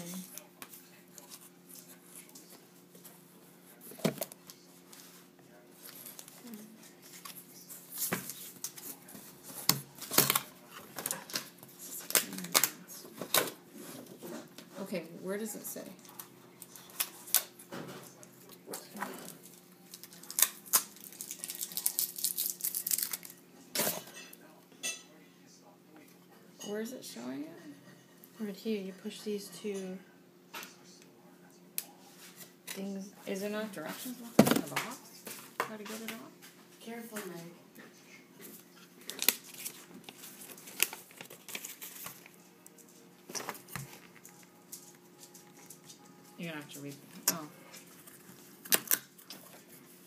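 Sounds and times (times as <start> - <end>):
paper rustling and crinkling: 38.4 - 46.1.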